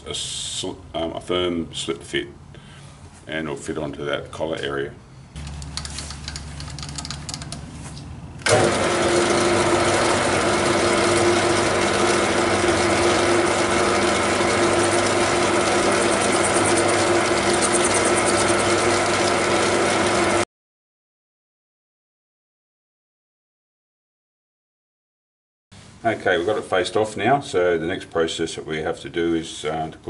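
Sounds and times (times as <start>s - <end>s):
metal lathe running: 8.4s - 20.4s.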